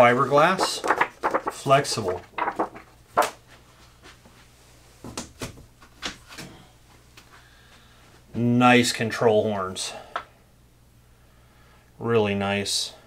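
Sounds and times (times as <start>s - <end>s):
rustling: 0.0s - 3.6s.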